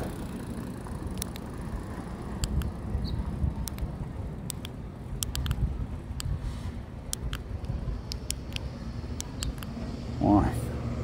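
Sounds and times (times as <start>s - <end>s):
steady low rumble: 0.0s - 11.0s
keyboard keys clicking: 4.5s - 5.6s, 7.1s - 9.7s.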